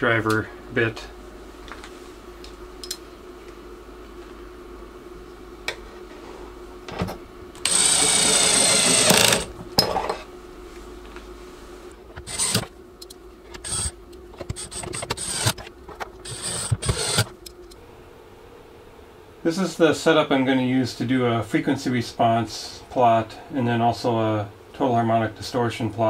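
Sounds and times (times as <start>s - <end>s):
cordless drill driving screws: 7.6s - 9.5s, 12.2s - 12.7s, 13.6s - 13.9s, 14.5s - 15.6s, 16.2s - 17.3s.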